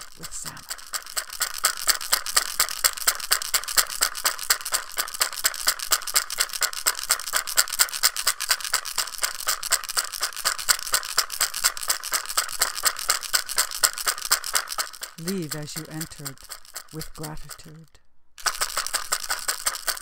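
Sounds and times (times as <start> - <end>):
shell rattle shaken: 0.0 - 20.0.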